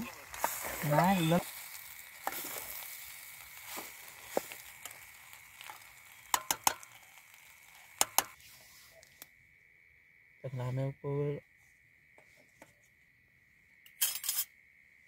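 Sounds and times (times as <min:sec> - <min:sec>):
pasta sizzling in a pot: 0:00.0 - 0:09.2.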